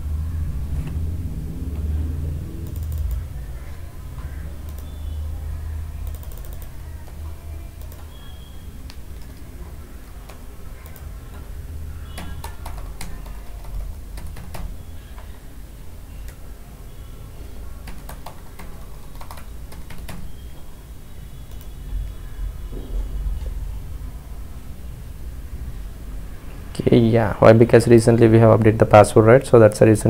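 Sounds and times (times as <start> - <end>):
steady low rumble: 0.0 - 7.9
keyboard typing: 1.7 - 16.5, 17.4 - 20.7, 21.4 - 22.3.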